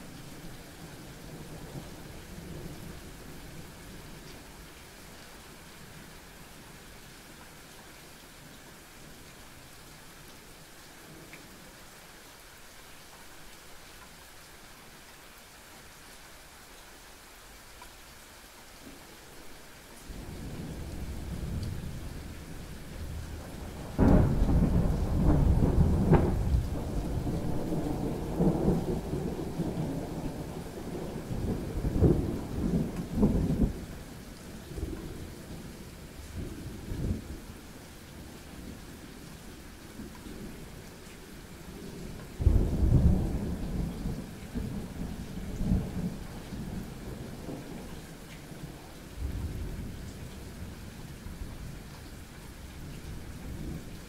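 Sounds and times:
steady rain: 0.0s - 54.0s
thunder rolling: 23.0s - 30.6s.

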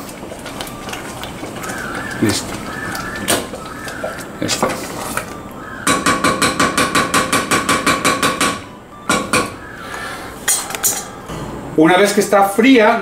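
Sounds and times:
spatula knocking on metal saucepan: 5.8s - 9.6s.

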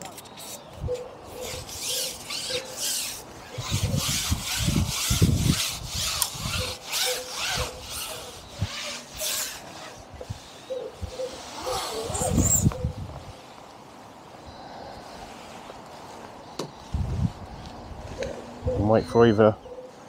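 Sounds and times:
pole sections sliding and rubbing: 0.0s - 13.7s.

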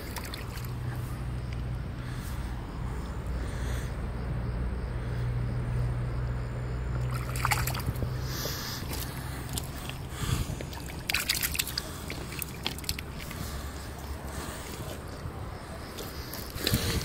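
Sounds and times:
water sloshing and splashing: 0.0s - 1.6s, 6.9s - 17.0s
steady low hum: 0.0s - 17.0s.

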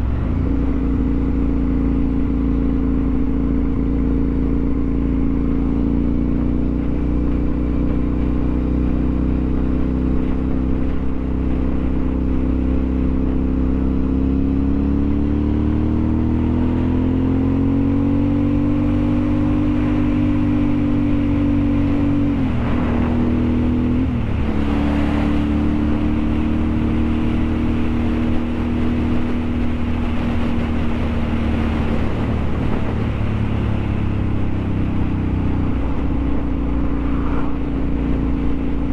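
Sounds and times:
vehicle engine running: 19.4s - 38.9s
heavy low rumble: 31.9s - 38.9s.

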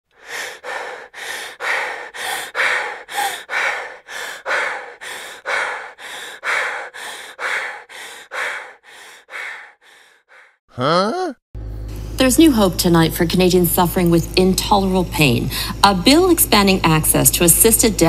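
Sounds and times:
heavy panting breaths: 0.1s - 10.6s.

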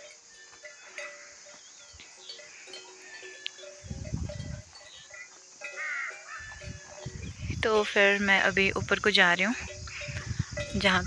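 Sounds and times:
livestock bells ringing: 0.0s - 11.0s
low rumble on microphone: 3.8s - 4.7s, 6.6s - 7.7s, 9.6s - 11.0s.

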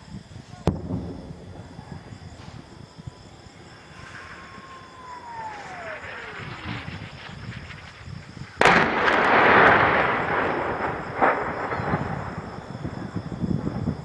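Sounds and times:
loud explosion rumbling: 0.6s - 14.0s
falling shell whistle: 3.8s - 9.7s
smaller bang: 4.0s - 10.6s.

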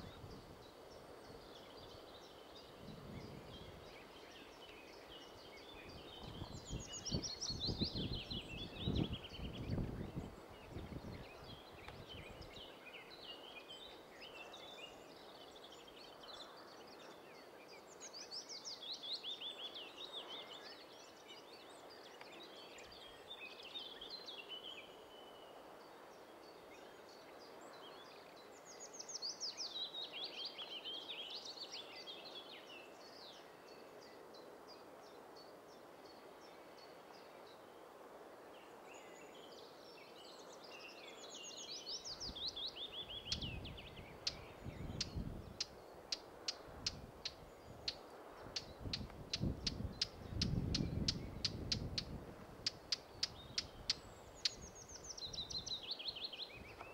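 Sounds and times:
songbird singing: 0.0s - 37.8s, 38.5s - 56.9s
faint outdoor background noise: 0.0s - 56.9s
faint bird twittering: 40.8s - 56.9s.

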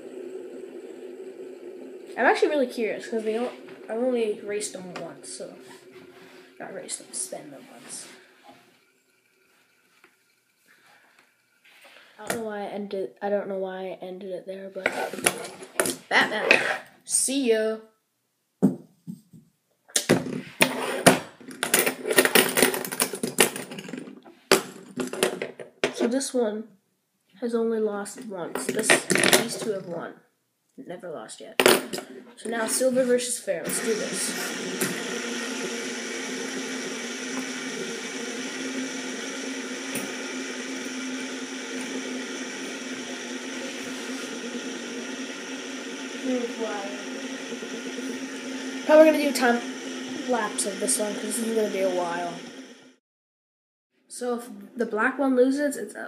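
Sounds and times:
fidget spinners whirring: 0.0s - 12.5s, 28.5s - 30.1s, 32.0s - 53.0s
faint hum: 0.0s - 16.6s, 31.9s - 52.9s.

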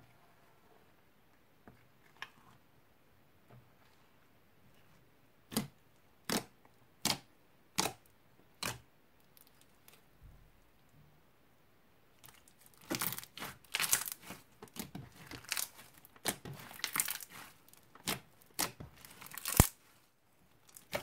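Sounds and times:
crunchy slime popping: 12.4s - 19.8s, 20.6s - 21.0s.

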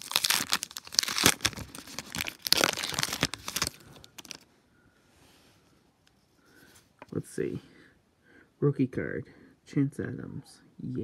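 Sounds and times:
card pack wrapper crinkling and tearing: 0.0s - 4.5s.

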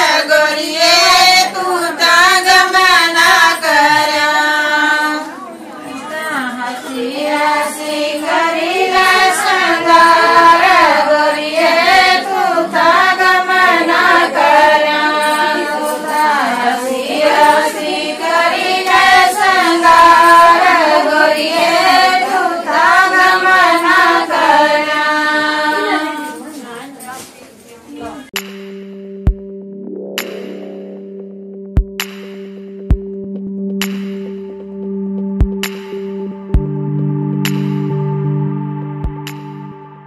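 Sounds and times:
women singing folk song: 0.0s - 26.6s.

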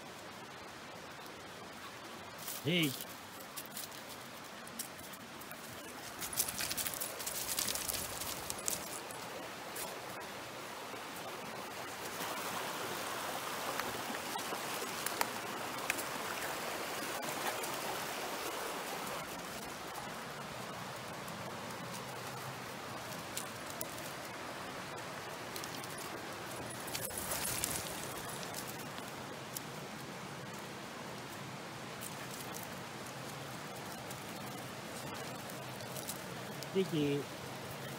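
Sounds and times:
stream running over rocks: 0.0s - 37.9s
sharp clicking and crackling: 6.0s - 9.0s.

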